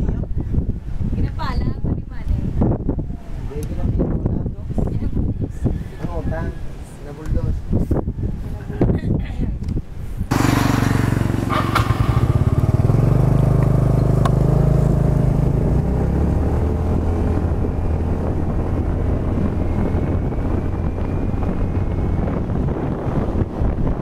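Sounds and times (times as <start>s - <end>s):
scooter engine running: 10.3s - 23.5s.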